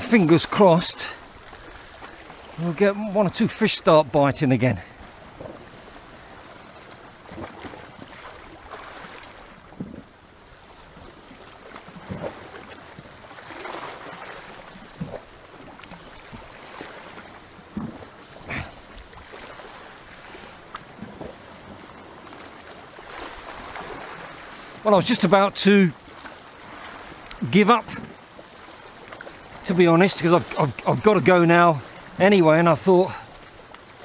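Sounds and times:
small water splashes: 0.0 - 3.7, 4.8 - 34.0
sea lapping against rocks: 5.0 - 10.1, 10.8 - 25.4, 26.0 - 32.2.

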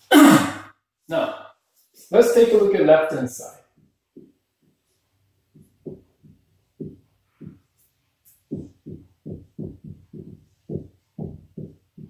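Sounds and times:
marker writing on a whiteboard: 3.7 - 12.0.

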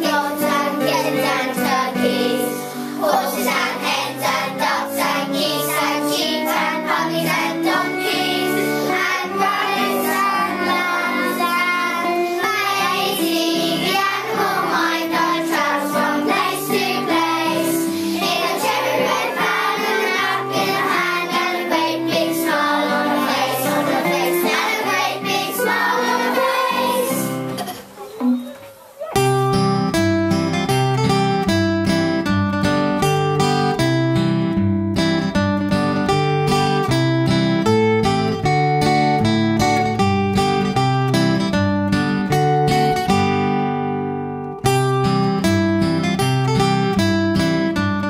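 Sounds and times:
children singing in unison: 0.0 - 27.8.

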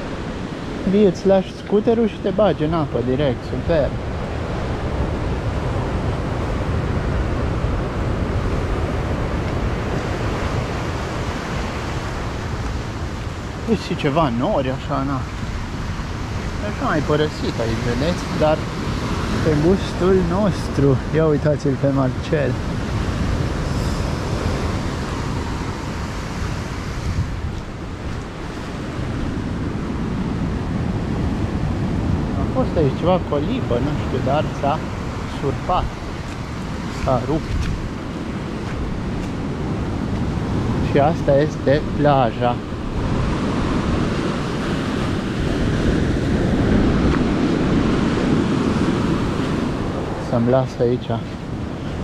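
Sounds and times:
sea surf washing on shore: 0.0 - 52.0
wind buffeting microphone: 0.0 - 52.0.

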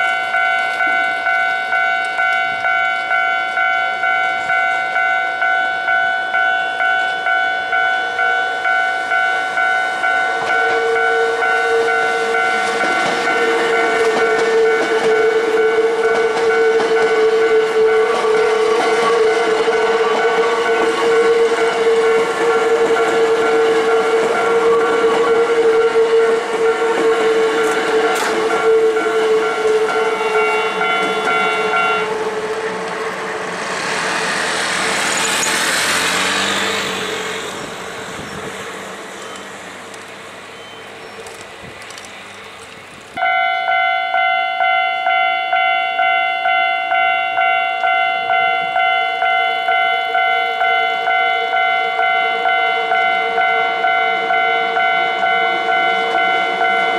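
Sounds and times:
level-crossing bell clanging: 0.0 - 26.2, 26.8 - 32.3, 43.2 - 56.9
high squeal of train wheels: 0.0 - 42.6
train rushing past: 0.0 - 43.8, 46.9 - 56.9.

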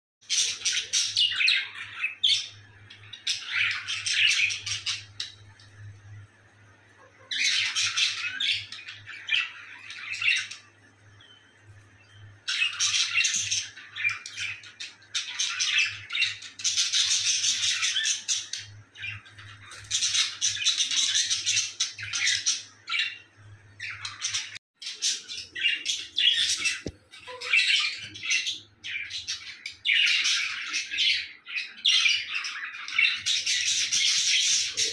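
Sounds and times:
budgerigars chattering and warbling: 0.2 - 5.6, 7.0 - 11.5, 12.1 - 34.9.

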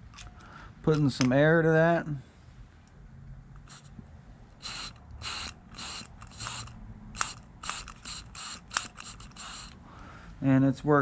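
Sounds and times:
small clicks: 4.6 - 9.8.

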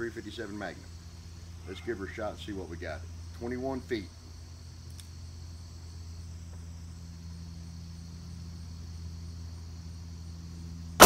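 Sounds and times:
insects chirring: 0.0 - 11.0
low steady hum: 0.0 - 11.0.

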